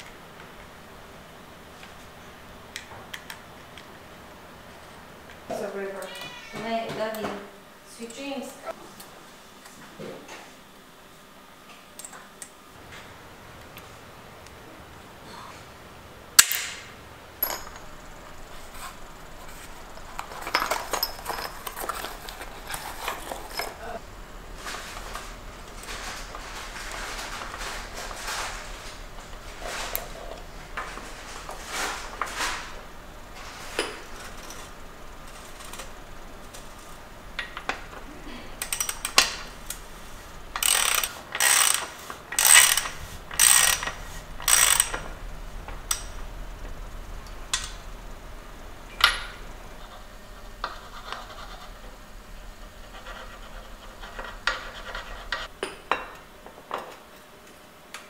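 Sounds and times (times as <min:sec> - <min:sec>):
metal parts scraping and turning: 0:17.4 - 0:46.3
sharp ratchet clicks: 0:35.3 - 0:37.7, 0:38.6 - 0:39.9, 0:40.5 - 0:45.1.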